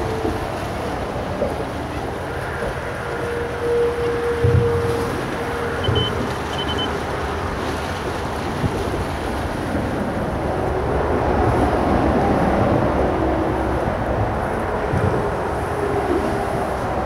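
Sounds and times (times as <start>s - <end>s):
wind blowing over microphone: 8.3s - 17.0s.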